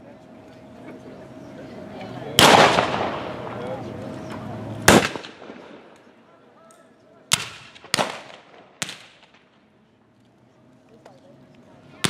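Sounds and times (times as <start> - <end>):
rifle shots with echo: 2.4 - 3.6, 4.9 - 6.1, 7.3 - 9.6.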